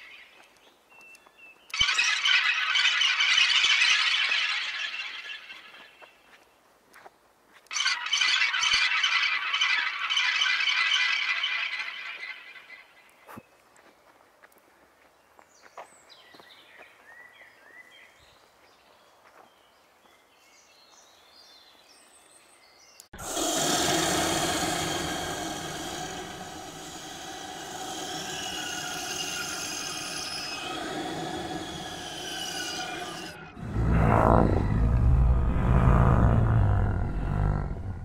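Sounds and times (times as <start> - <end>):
bird chirps: 0.0 - 6.6, 7.7 - 13.6, 23.8 - 35.8
loud dense steady drone: 23.2 - 37.2.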